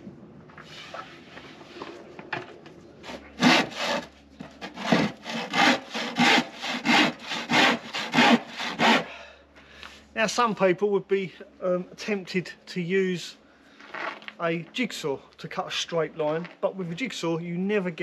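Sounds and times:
handsaw cutting wood: 0:03.0 - 0:09.1.

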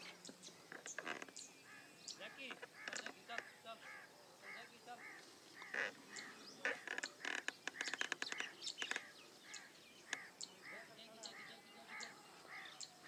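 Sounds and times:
birds calling: 0:00.0 - 0:13.0.

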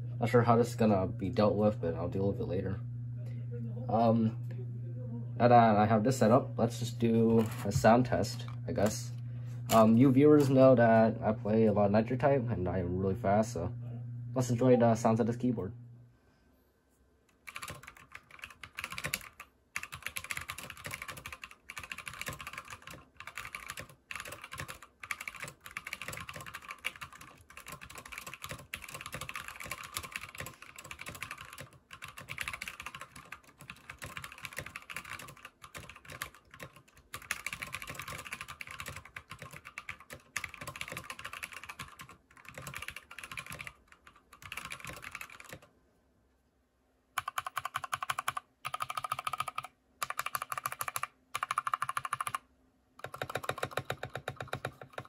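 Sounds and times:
fast typing on a mechanical keyboard: 0:17.4 - 0:45.7, 0:47.2 - 0:52.4, 0:53.0 - 0:55.0.

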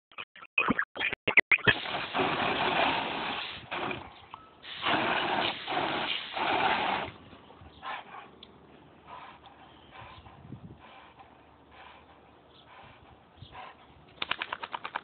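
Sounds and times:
hose water spraying and splashing: 0:01.6 - 0:07.2
dog snapping at water: 0:14.2 - 0:15.0.

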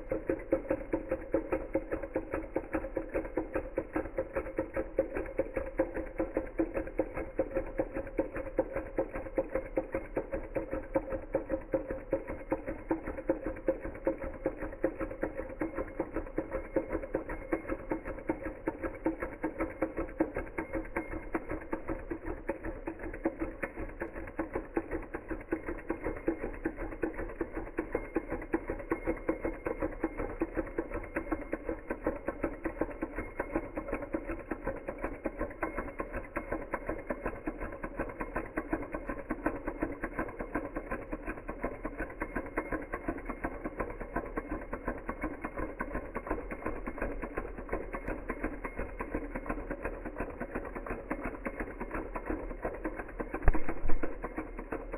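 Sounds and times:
stirling engine mechanical ticking: 0:00.0 - 0:54.9.

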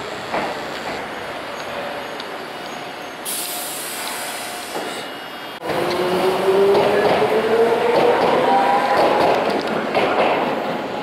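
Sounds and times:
tram rolling: 0:00.0 - 0:11.0
air brakes hissing: 0:03.2 - 0:05.2.

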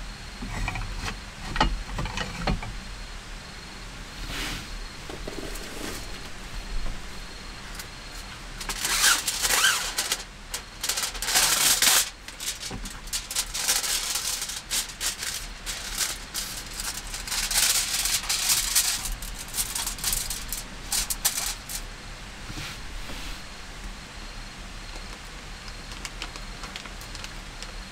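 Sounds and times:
plastic and foil crinkling: 0:08.6 - 0:21.9, 0:24.9 - 0:27.9.

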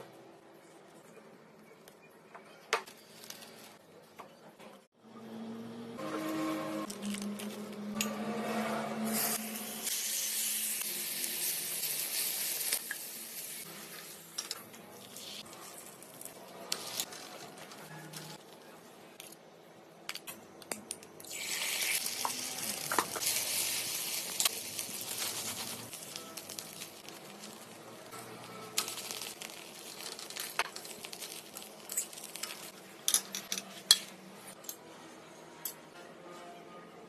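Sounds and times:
egg sizzling on hot pan: 0:21.2 - 0:32.4.

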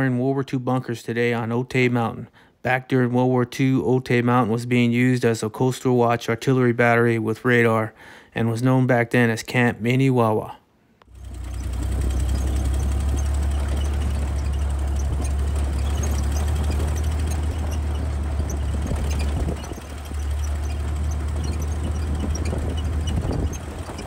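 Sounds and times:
jeep engine droning: 0:11.1 - 0:24.0
tyres on gravel track: 0:11.1 - 0:24.0.

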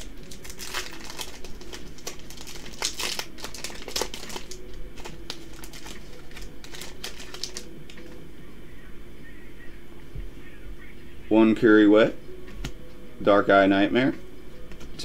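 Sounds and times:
foil wrapper crinkling: 0:00.0 - 0:08.2.

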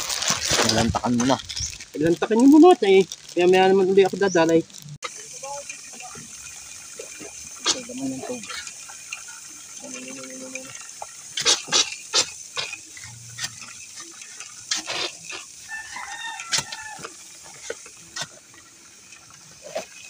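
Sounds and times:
rooster crowing: 0:15.6 - 0:17.3.

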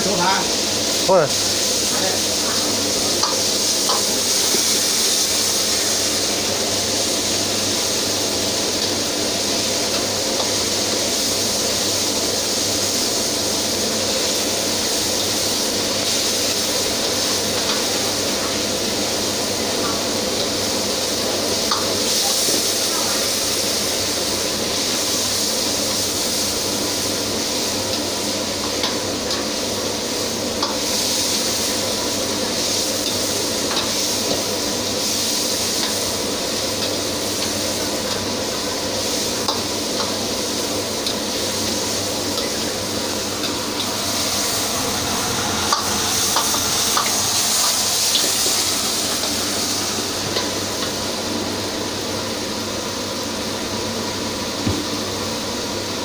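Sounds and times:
food sizzling in hot oil: 0:00.0 - 0:56.0
steady hum: 0:39.2 - 0:52.4.

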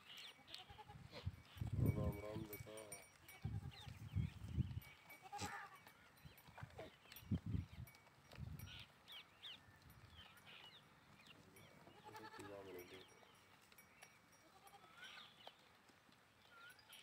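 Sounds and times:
goat bleating: 0:00.4 - 0:01.2, 0:03.2 - 0:04.0, 0:05.1 - 0:06.0, 0:11.8 - 0:13.0, 0:14.4 - 0:15.4
bird chirps: 0:08.6 - 0:12.1.

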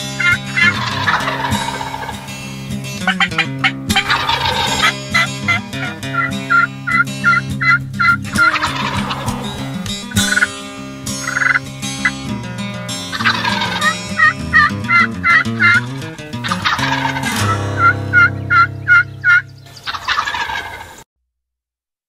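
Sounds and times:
hen turkey yelps: 0:00.2 - 0:02.4, 0:03.0 - 0:10.5, 0:11.2 - 0:11.6, 0:13.1 - 0:15.8, 0:16.4 - 0:21.0
turkey gobbles: 0:00.2 - 0:10.6, 0:11.2 - 0:12.2, 0:13.1 - 0:21.0.

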